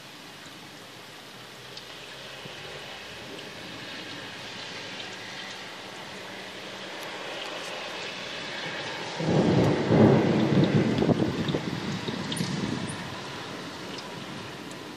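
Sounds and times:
steady rain falling: 0.0s - 14.9s
thunder rumble: 8.4s - 14.9s.

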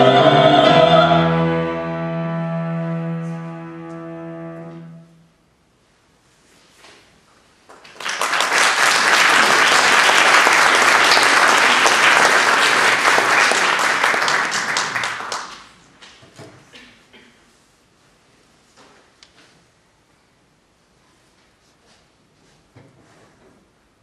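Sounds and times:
audience applauding: 7.7s - 15.8s.

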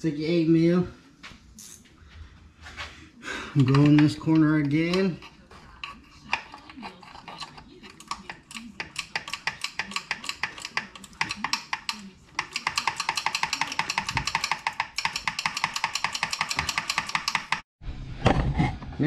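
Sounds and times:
ratchet wrench clicking: 8.0s - 17.6s.

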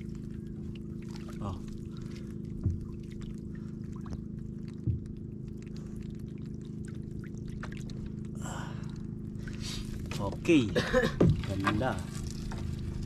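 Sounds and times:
water dripping: 0.0s - 9.0s
boat engine idling: 0.0s - 13.0s
dull knocks: 2.6s - 2.9s, 11.1s - 11.8s.

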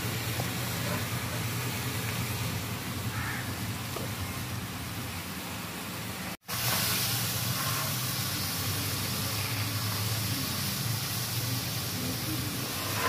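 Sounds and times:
food frying hiss: 0.0s - 13.0s.

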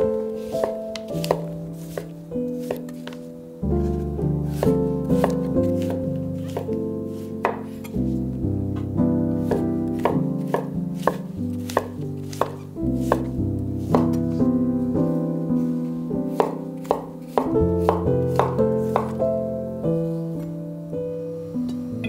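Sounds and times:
background music: 0.0s - 22.0s
knife chopping on wooden board: 0.4s - 3.2s, 4.5s - 6.8s, 7.4s - 8.0s, 9.4s - 14.2s, 16.3s - 19.2s.

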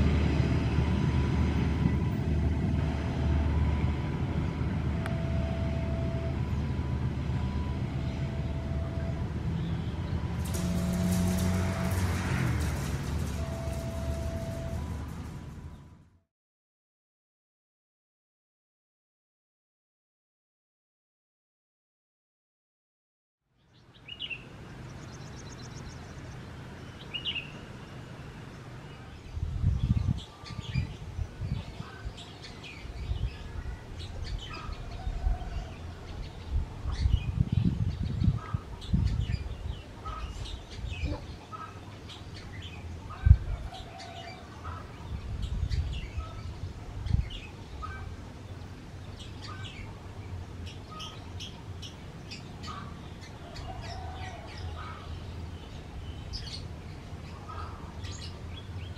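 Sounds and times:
diesel locomotive drone: 0.0s - 16.2s
wind buffeting microphone: 29.3s - 32.2s, 32.8s - 41.4s, 42.9s - 44.0s, 44.9s - 48.2s.

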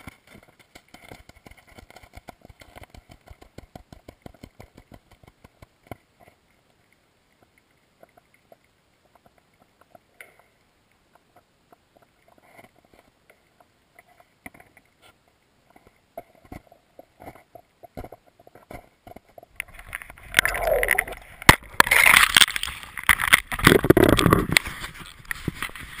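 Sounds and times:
faint underwater clicks: 0.0s - 26.0s
water sloshing and gurgling: 19.4s - 26.0s.

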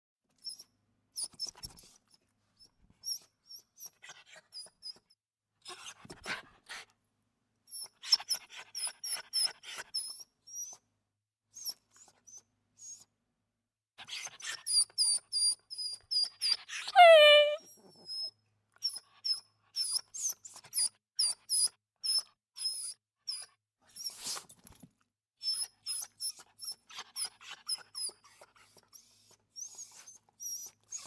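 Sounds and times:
dog whimpering: 17.0s - 17.6s.

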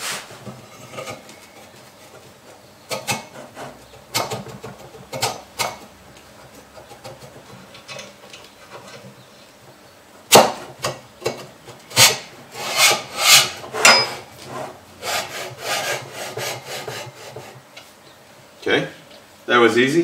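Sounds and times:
metal collar scraping down tube: 11.9s - 14.8s.

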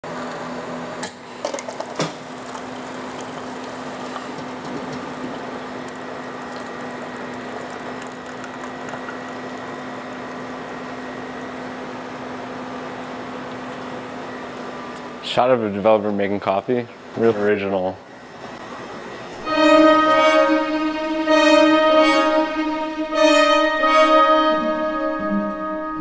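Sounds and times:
coffee machine pump humming: 1.1s - 15.1s
thin high tone: 19.4s - 26.0s.

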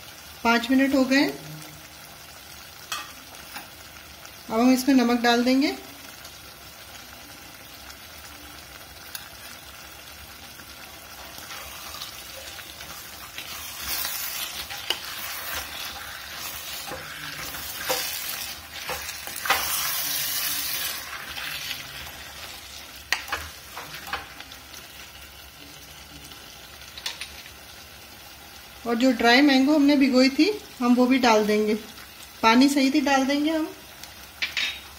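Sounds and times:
food sizzling in a pot: 0.0s - 34.9s
spatula scraping a metal pot: 11.2s - 24.3s.

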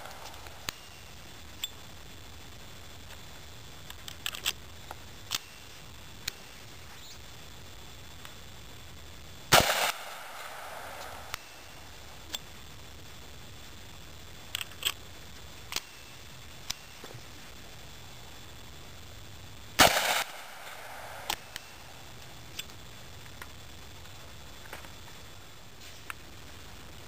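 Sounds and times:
metallic clicks of pistol: 3.9s - 4.6s, 14.5s - 15.0s
gunshot with echo: 9.5s - 11.6s, 19.8s - 21.6s.

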